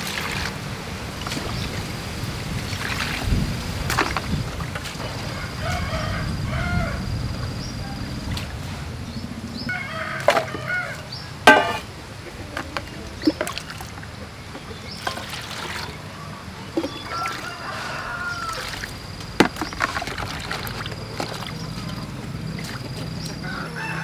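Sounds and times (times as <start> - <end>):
water sloshing in bowl: 0.0 - 5.8, 9.8 - 23.5
water pouring into bowl: 2.6 - 3.3, 15.0 - 16.0, 16.8 - 19.0, 19.6 - 22.0
metallic bowl clank: 11.5 - 12.0.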